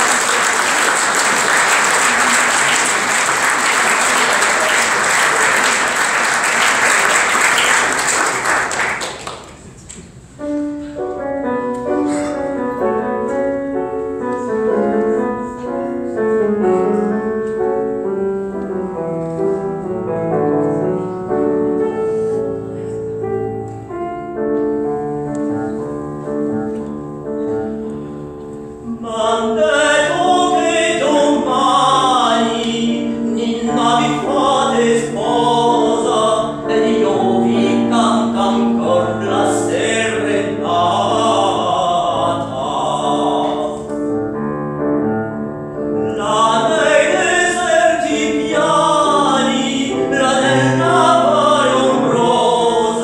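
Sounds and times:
audience applause: 0.0 - 9.6
piano chords: 0.0 - 53.0.

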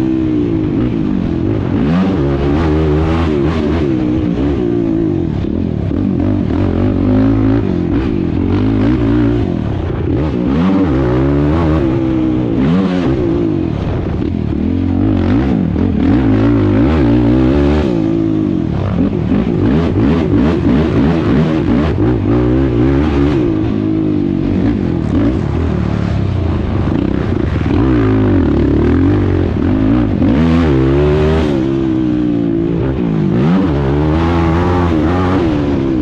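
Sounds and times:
quad engine revving: 0.0 - 36.0.

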